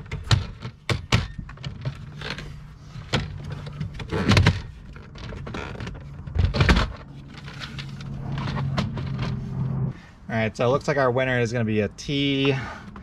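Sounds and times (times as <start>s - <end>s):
plastic panel clattering: 0.0s - 9.4s.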